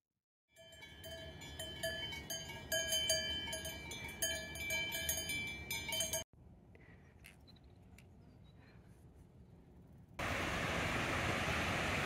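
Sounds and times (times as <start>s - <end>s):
cowbells clanking: 0.6s - 6.3s
outdoor background noise: 0.6s - 12.0s.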